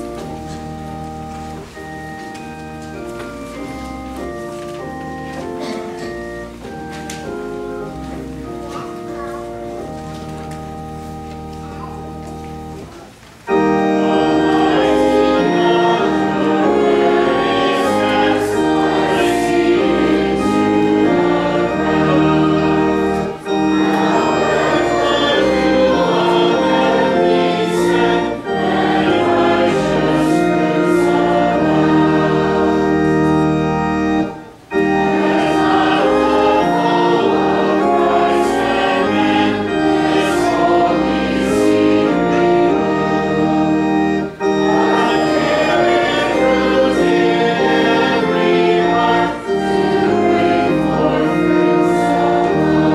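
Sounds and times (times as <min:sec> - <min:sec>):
congregation singing a hymn: 0:00.0 - 0:52.9
pipe organ chords: 0:00.0 - 0:52.9.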